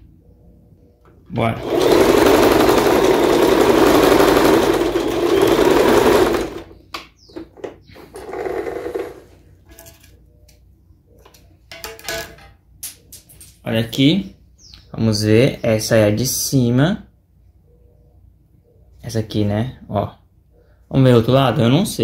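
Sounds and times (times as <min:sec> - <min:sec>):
sewing machine stitching: 0:01.4 - 0:06.8, 0:08.0 - 0:09.3.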